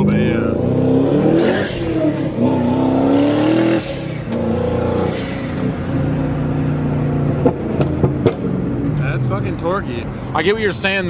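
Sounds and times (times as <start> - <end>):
car engine accelerating: 0.0 - 10.8.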